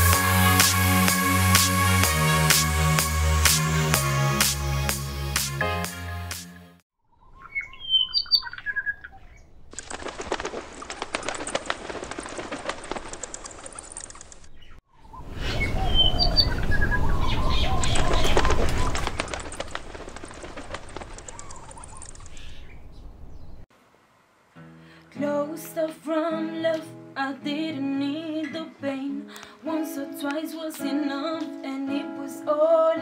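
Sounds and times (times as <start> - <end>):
birds chirping: 7.0 - 23.7
wings flapping: 9.6 - 14.8, 15.6 - 23.0.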